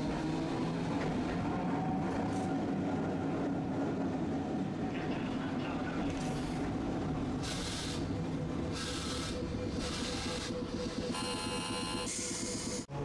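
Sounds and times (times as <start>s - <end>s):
streetcar rumble and hum: 0.0s - 13.0s.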